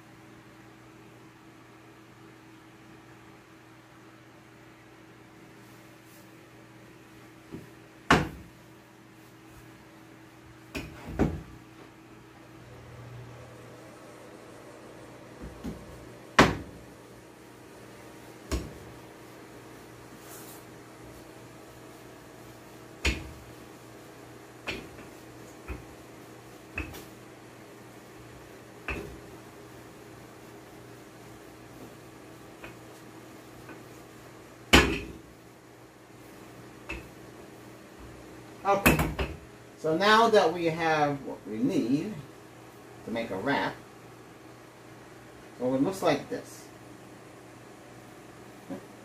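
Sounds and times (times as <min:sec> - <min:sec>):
steady low hum: 0:00.0 - 0:49.0
knocks on kitchen counter: 0:08.1 - 0:08.4, 0:16.4 - 0:16.7, 0:34.7 - 0:35.2
low hum: 0:09.9 - 0:22.5.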